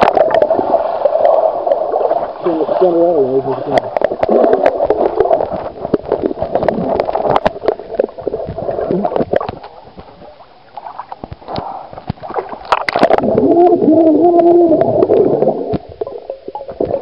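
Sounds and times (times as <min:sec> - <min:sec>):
underwater bubbling and gurgling: 0:00.0 - 0:17.0
sharp clicks and crackles: 0:03.8 - 0:13.2.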